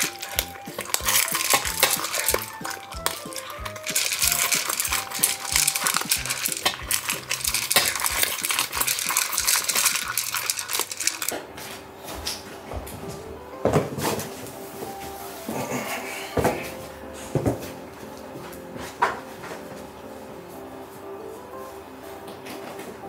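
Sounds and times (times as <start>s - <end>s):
background music with steady beat: 0.0s - 10.4s
dog crunching kibble in metal bowl: 0.0s - 11.4s.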